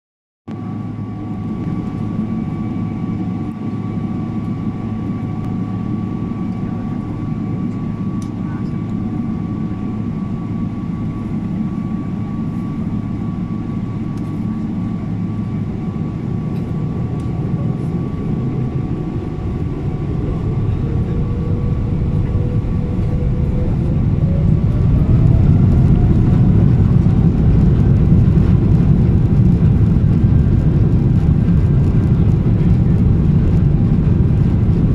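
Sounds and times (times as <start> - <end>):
jet engines humming in cabin: 0.5 - 34.9
jet engines spooling up: 7.2 - 34.9.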